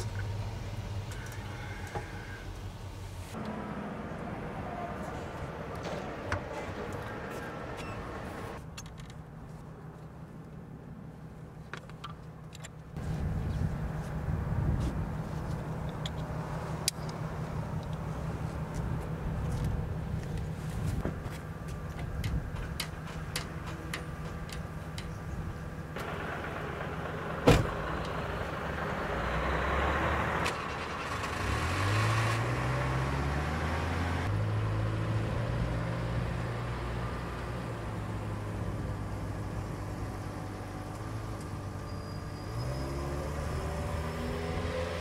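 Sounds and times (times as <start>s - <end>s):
truck engine running and revving: 13.0s - 45.0s
door slamming: 27.4s - 27.8s.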